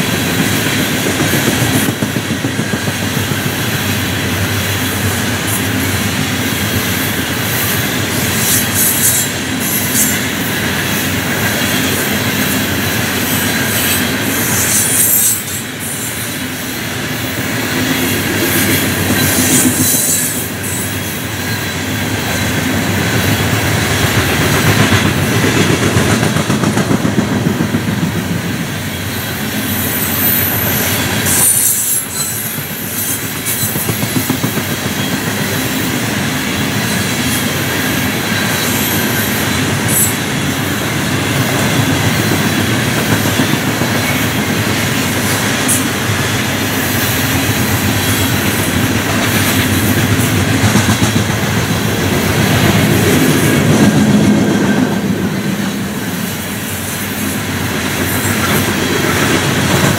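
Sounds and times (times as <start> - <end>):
rumble of wheels on track: 0.0 - 59.9
high wheel squeals: 13.2 - 16.4, 28.9 - 34.0, 36.8 - 40.4.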